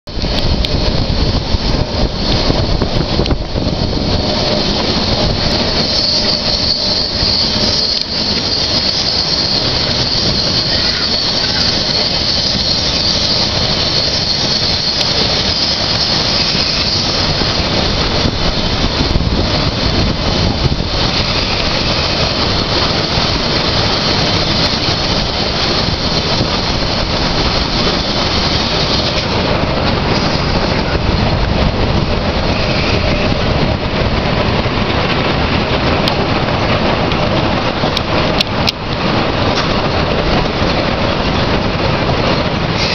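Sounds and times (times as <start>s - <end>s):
train wheels rumbling on rail: 0.0s - 42.9s
high wheel squeal: 3.8s - 19.8s, 20.4s - 29.4s, 30.0s - 31.3s, 32.3s - 33.4s.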